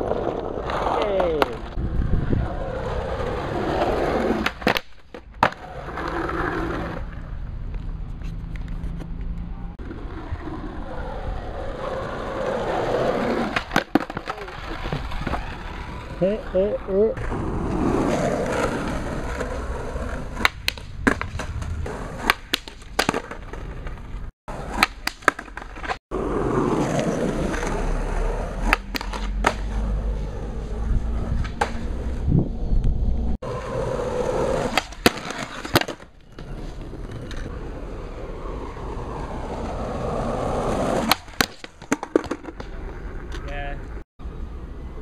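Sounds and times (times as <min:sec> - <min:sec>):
skateboard wheels rumbling: 0:00.0 - 0:45.0
skateboard clacks: 0:04.4 - 0:06.2, 0:13.3 - 0:15.5, 0:20.1 - 0:21.6, 0:22.2 - 0:24.0, 0:24.6 - 0:26.0, 0:28.6 - 0:29.8, 0:33.5 - 0:36.5, 0:40.8 - 0:43.5.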